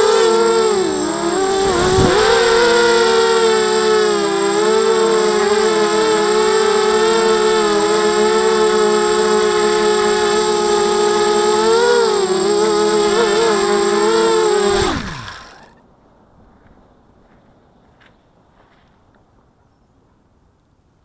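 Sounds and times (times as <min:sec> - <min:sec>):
drone motors whining: 0:00.0 - 0:15.8.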